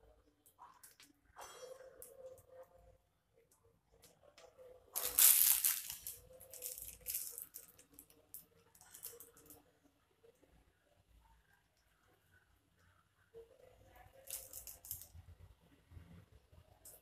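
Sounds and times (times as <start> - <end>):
plastic crinkling and rustling: 5.0 - 9.6, 14.2 - 15.1.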